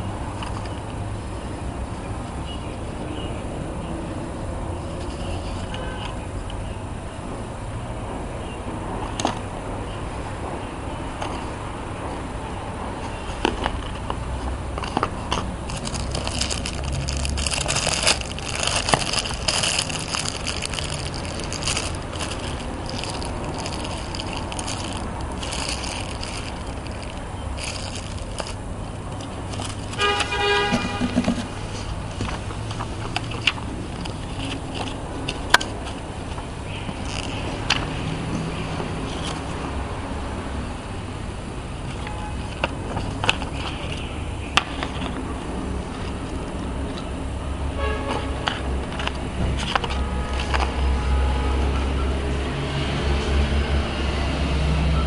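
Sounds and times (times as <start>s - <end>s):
plastic bag crinkling: 15.5s - 30.1s, 37.0s - 37.4s.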